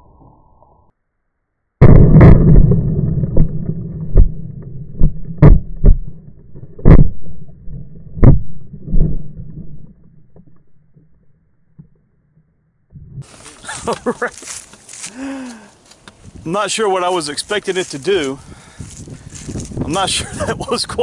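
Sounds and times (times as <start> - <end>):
explosion blast: 1.8 - 9.3
rumble: 1.8 - 13.3.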